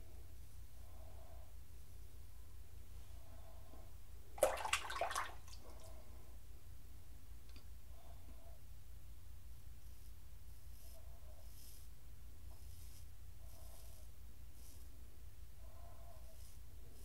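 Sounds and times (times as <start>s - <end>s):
clicking and splashing: 4.4s - 5.6s.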